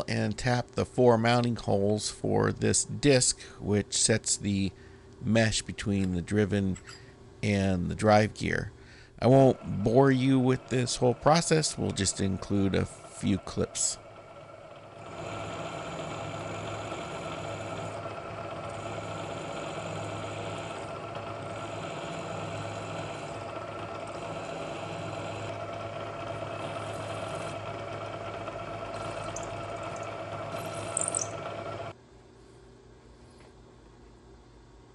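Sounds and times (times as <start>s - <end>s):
machine tool humming: 9.2s - 32.0s
drill cutting metal: 9.3s - 31.9s.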